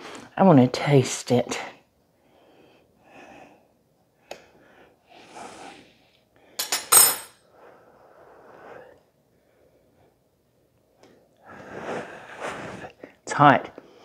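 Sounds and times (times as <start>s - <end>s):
breathy puffs of blowing: 4.5s - 6.1s, 11.4s - 13.2s.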